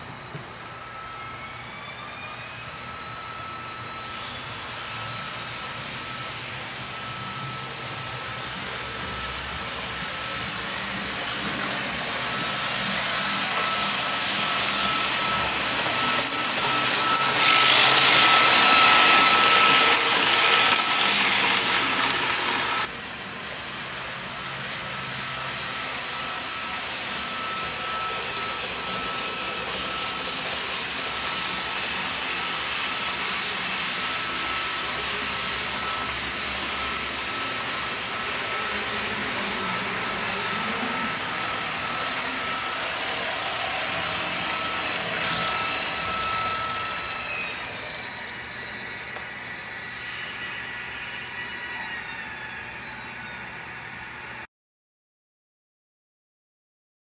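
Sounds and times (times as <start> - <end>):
model train running: 0.0 - 54.4
faint high steady tone: 24.5 - 54.4.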